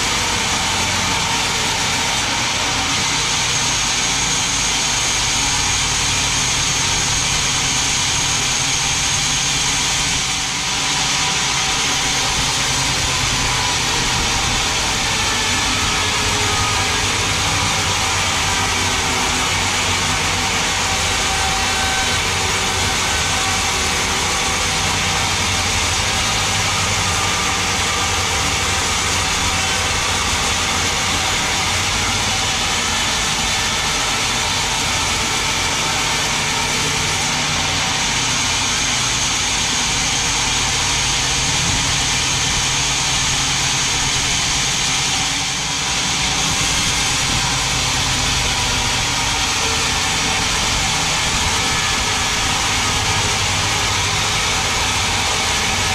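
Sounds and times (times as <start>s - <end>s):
band saw blade cutting wood: 0.1s - 55.9s.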